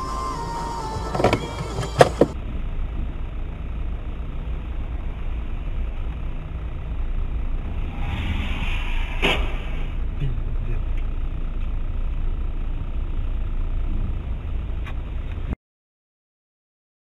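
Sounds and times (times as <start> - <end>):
car engine rumble: 0.0 - 15.6
road noise: 0.0 - 15.6.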